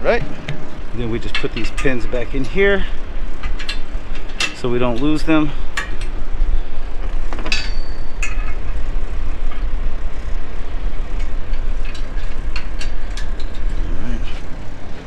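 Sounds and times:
metal pins clicking and clinking: 0:00.4 - 0:06.2, 0:07.3 - 0:09.6, 0:11.1 - 0:14.6.

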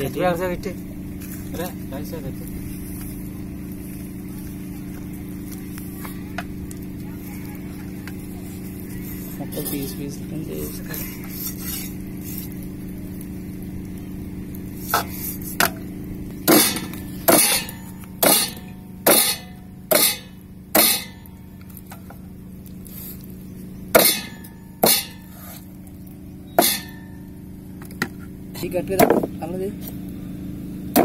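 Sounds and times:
knife chopping meat on wood: 0:18.2 - 0:20.2, 0:20.8 - 0:21.1, 0:24.0 - 0:25.2.

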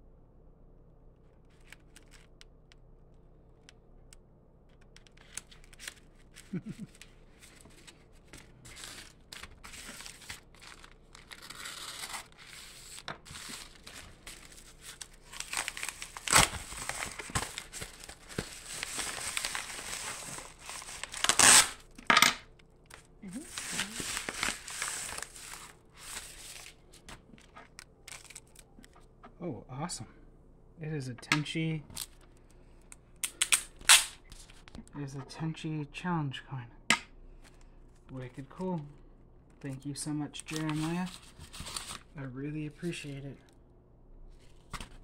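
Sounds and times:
padded mailers crinkling: 0:04.8 - 0:22.0, 0:22.8 - 0:29.0, 0:40.3 - 0:42.2.

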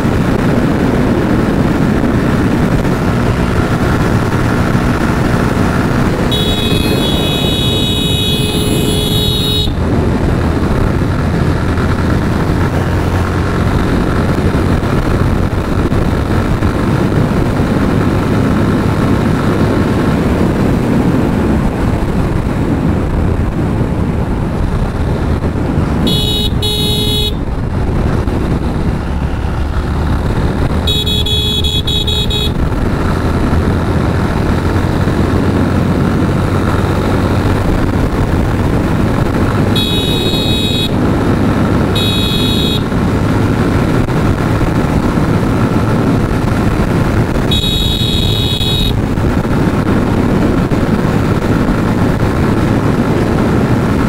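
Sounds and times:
motorcycle engine and wind noise: 0:00.0 - 0:54.0
vehicle horn blasts: 0:06.2 - 0:09.8, 0:26.0 - 0:27.5, 0:30.8 - 0:32.6, 0:39.7 - 0:41.1, 0:41.9 - 0:42.9, 0:47.4 - 0:49.0.

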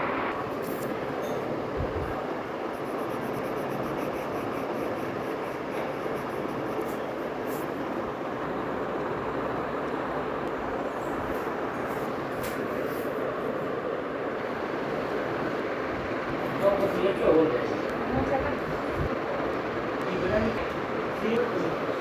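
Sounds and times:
rumbling background noise: 0:00.0 - 0:12.3.

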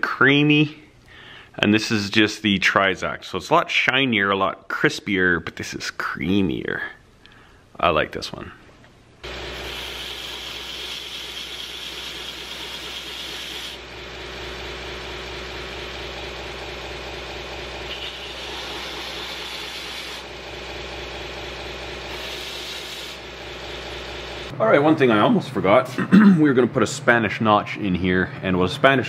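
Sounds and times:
belt grinder motor hum: 0:09.2 - 0:16.3, 0:17.4 - 0:20.6.

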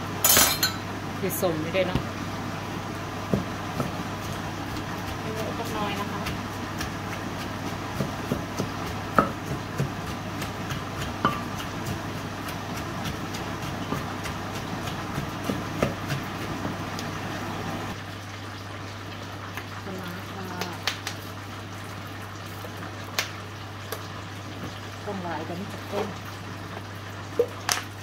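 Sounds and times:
wooden pestle pounding in mortar: 0:03.3 - 0:16.9.

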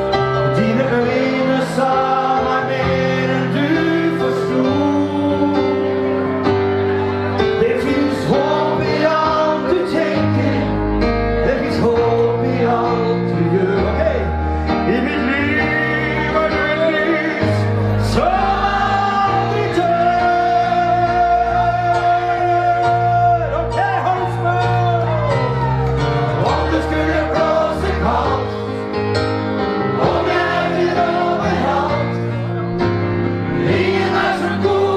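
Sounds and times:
electric keyboard: 0:00.0 - 0:34.9
man singing pop ballad: 0:00.3 - 0:05.8, 0:07.6 - 0:23.6.

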